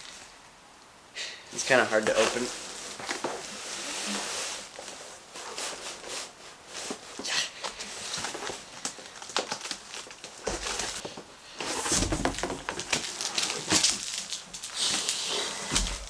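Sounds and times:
plastic and cardboard rustling: 0:01.6 - 0:16.0.

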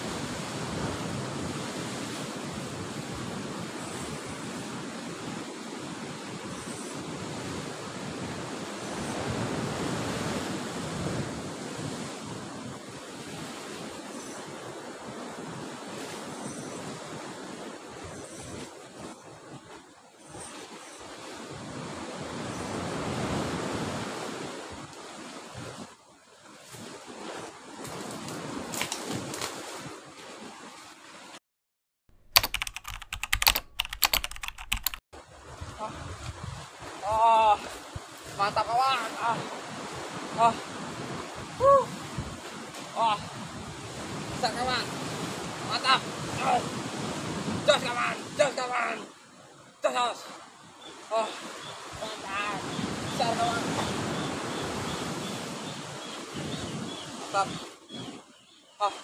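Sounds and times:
wind on microphone: 0:00.0 - 0:26.0, 0:35.2 - 0:48.4, 0:50.7 - 0:58.3
surf washing against rocks: 0:00.0 - 0:31.1, 0:35.2 - 0:58.0
computer keyboard typing: 0:32.4 - 0:35.0.

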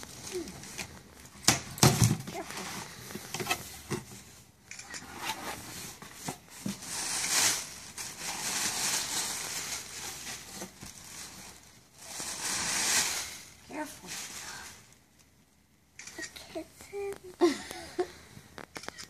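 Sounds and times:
tissue paper rustling: 0:00.0 - 0:01.3, 0:02.0 - 0:15.0.

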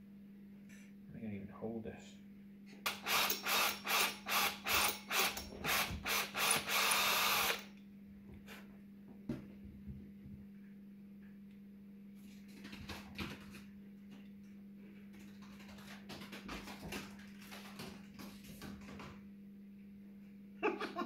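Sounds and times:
steady low hum: 0:00.0 - 0:12.6.

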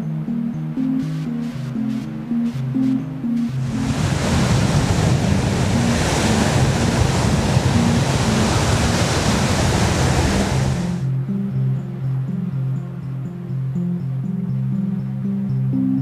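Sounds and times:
background music: 0:00.0 - 0:16.0
ocean surf breaking: 0:01.0 - 0:11.1.

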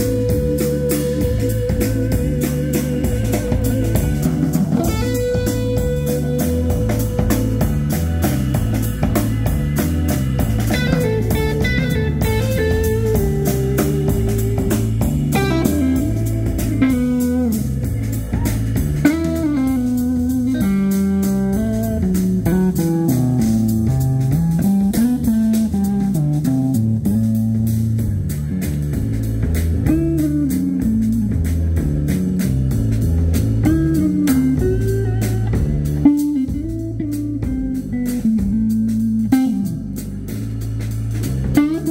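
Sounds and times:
electric guitar solo: 0:00.0 - 0:09.2, 0:10.7 - 0:27.2, 0:33.6 - 0:40.0, 0:41.6 - 0:41.9
drum kit: 0:00.0 - 0:41.9
organ bass line: 0:00.0 - 0:41.9.

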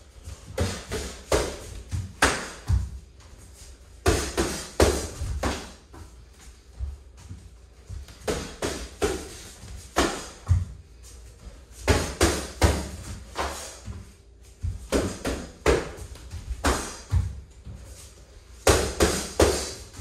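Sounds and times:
gloves and kicks smacking: 0:00.5 - 0:03.0, 0:04.0 - 0:05.9, 0:08.0 - 0:10.8, 0:11.8 - 0:13.8, 0:14.6 - 0:17.4, 0:18.6 - 0:20.0.

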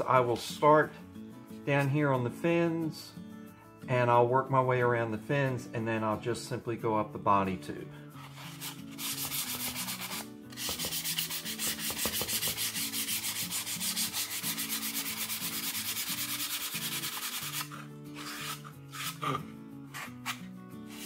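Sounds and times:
sandpaper rubbing strokes: 0:08.2 - 0:21.0.

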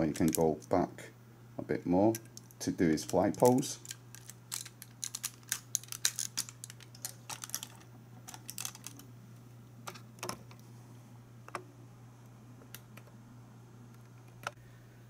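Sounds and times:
low steady hum: 0:00.0 - 0:15.0
plastic figure parts clicking: 0:02.1 - 0:09.0.

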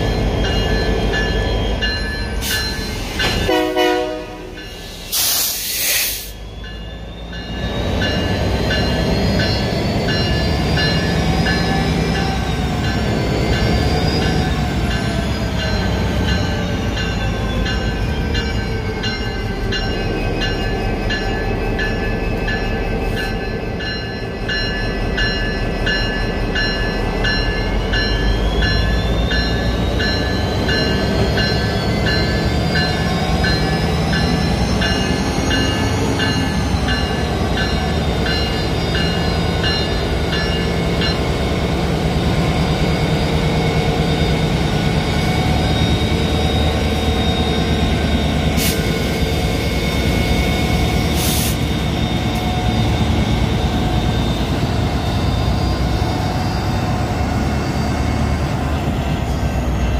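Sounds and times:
locomotive bell ringing: 0:00.0 - 0:05.2, 0:06.3 - 0:59.9
diesel locomotive engine rumbling: 0:00.0 - 0:59.9
air hiss burst: 0:04.8 - 0:06.4.

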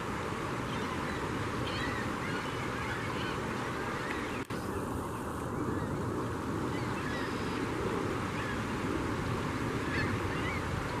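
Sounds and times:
rush of water or wind: 0:00.0 - 0:11.0
gulls calling: 0:00.5 - 0:11.0.

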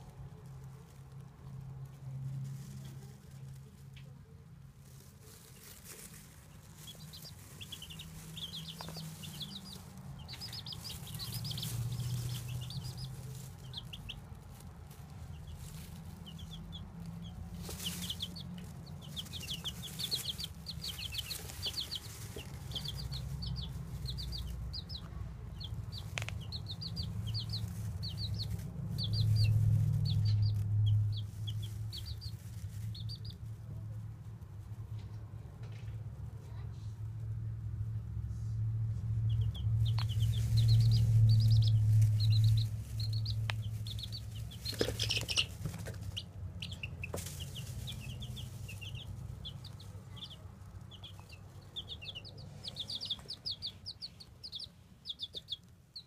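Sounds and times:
baby chicks peeping: 0:00.0 - 0:56.0
low rumble: 0:04.8 - 0:54.6.

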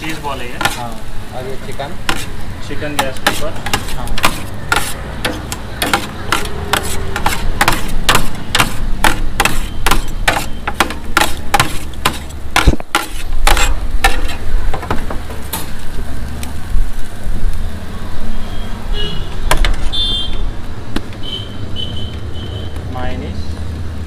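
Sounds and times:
metal spatulas scraping griddle: 0:00.0 - 0:01.0, 0:02.0 - 0:14.5.

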